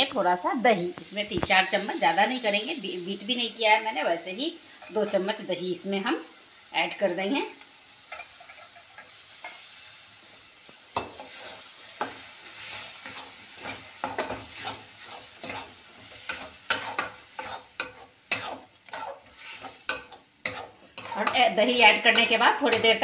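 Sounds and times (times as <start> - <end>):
sizzling in metal pan: 0.2 - 23.0
metal spatula scraping pan: 11.0 - 23.0.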